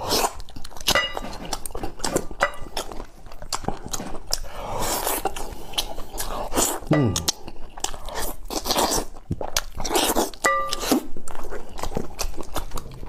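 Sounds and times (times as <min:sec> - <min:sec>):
wet chewing and smacking: 0:00.0 - 0:13.0
mouth clicks: 0:06.9 - 0:07.4.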